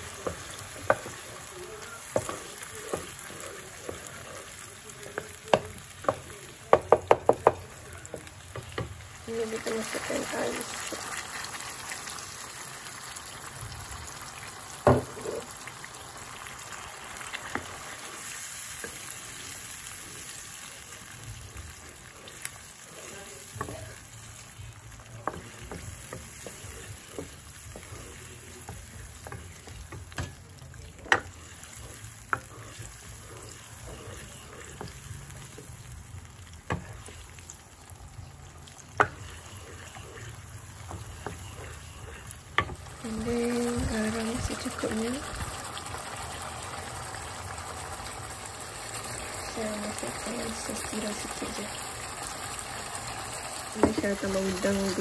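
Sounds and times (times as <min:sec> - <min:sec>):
sauce sizzling and bubbling: 0:00.0 - 0:55.0
spatula knocking on pan: 0:05.5 - 0:07.6.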